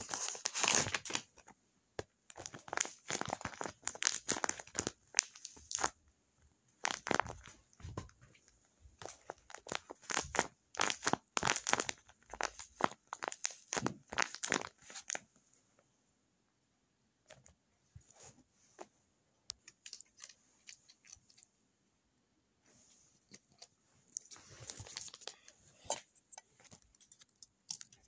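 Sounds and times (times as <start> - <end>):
tape-covered paper crinkling: 0.0 - 1.5, 2.3 - 6.0, 6.8 - 8.4, 9.0 - 15.2, 19.6 - 21.5, 23.2 - 28.0
faint crinkles and taps: 1.0 - 15.9, 17.2 - 21.5, 22.9 - 28.0.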